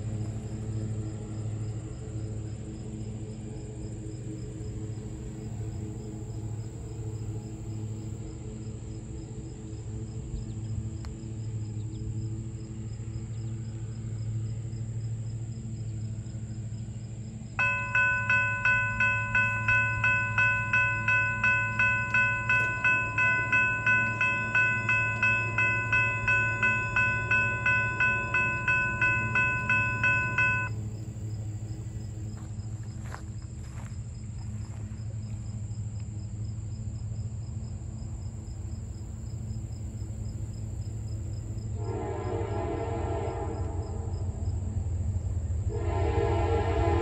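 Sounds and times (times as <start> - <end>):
electronic crossing bell ringing: 17.6 - 30.8.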